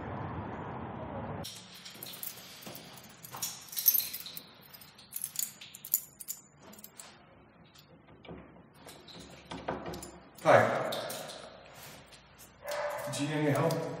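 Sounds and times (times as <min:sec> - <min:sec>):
keys jangling: 0:01.5 - 0:07.2, 0:08.9 - 0:11.6, 0:12.4 - 0:13.9.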